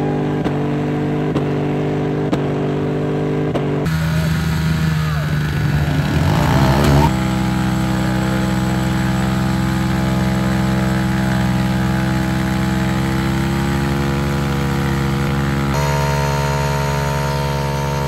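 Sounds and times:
small motorcycle engine revving: 3.6s - 18.0s.

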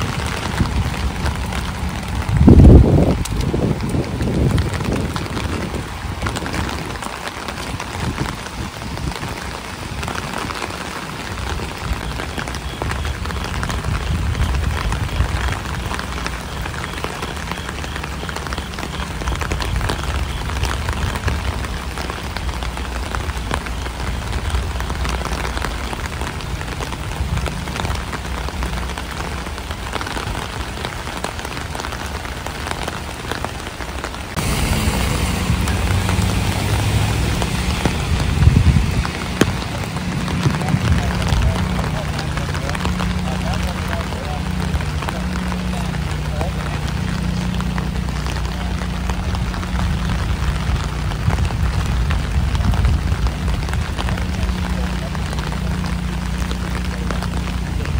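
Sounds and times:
fast creek water rushing: 0.0s - 57.9s
low rumble: 0.0s - 57.9s
rain: 0.0s - 57.9s.

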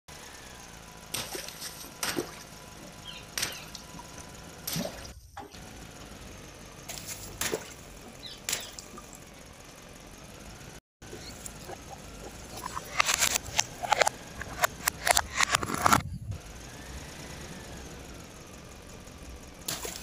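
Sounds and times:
engine idling: 0.1s - 20.0s
water balloons bursting: 1.1s - 2.6s, 19.7s - 20.0s
water splashing: 1.2s - 5.5s, 19.7s - 20.0s.

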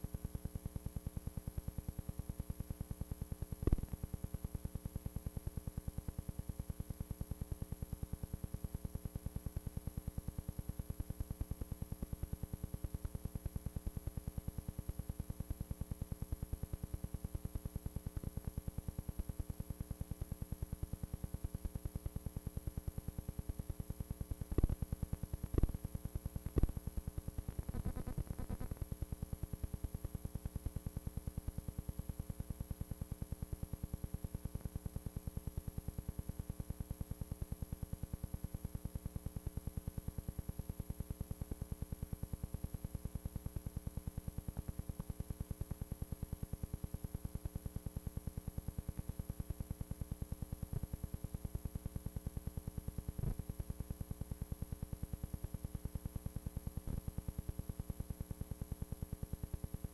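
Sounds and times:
pulsing electrical buzz: 27.5s - 28.8s.

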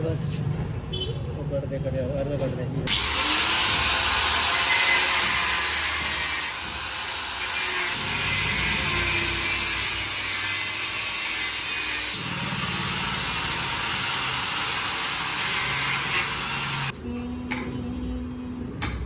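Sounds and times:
power tool cutting metal: 2.9s - 17.0s.

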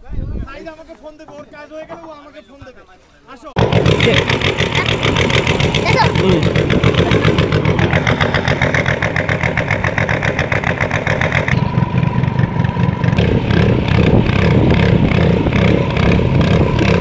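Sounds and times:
boat engine running: 3.6s - 17.0s.

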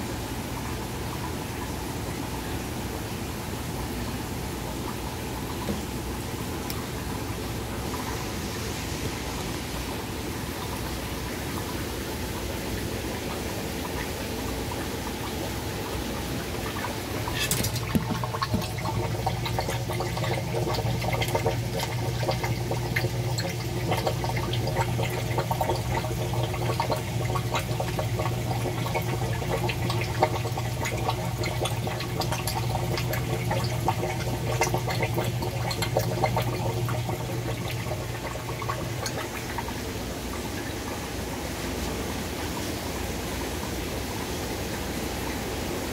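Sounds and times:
water trickling and splashing: 3.9s - 45.9s.

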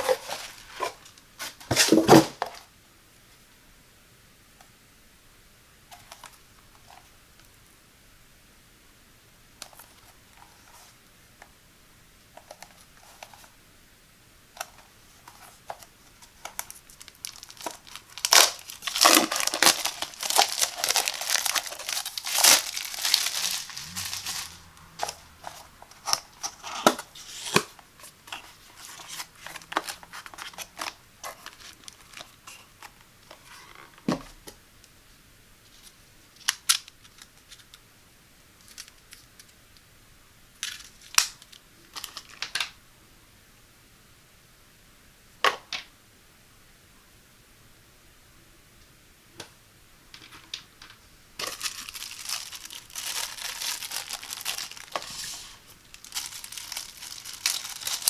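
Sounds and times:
plastic wrap tearing and crinkling: 16.2s - 32.9s, 40.6s - 42.7s, 51.4s - 58.0s.

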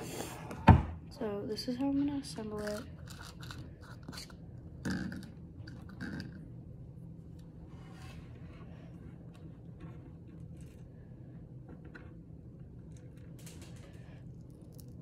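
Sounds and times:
faint scraping and rubbing: 7.6s - 11.3s.

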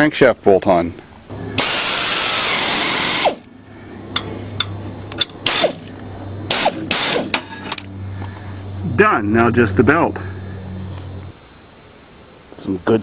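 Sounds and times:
pneumatic air ratchet: 1.6s - 3.5s, 5.4s - 5.9s, 6.5s - 7.9s.

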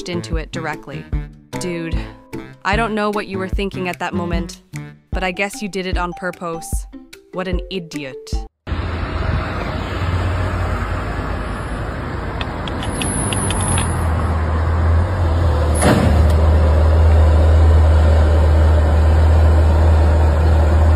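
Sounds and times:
car engines rumbling: 8.7s - 20.9s.

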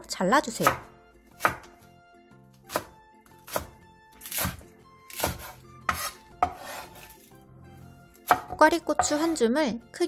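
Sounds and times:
soft background music: 0.0s - 10.0s
knife chopping on wooden board: 0.6s - 1.8s, 2.6s - 7.2s, 8.2s - 9.4s.

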